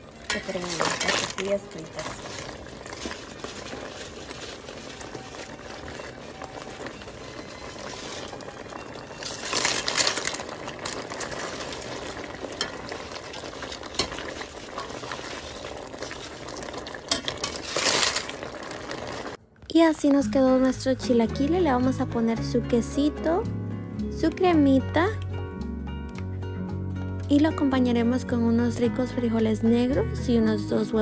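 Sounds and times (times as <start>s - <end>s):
salsa bubbling in a pot: 0.0s - 19.4s
chips rustling: 0.3s - 19.4s.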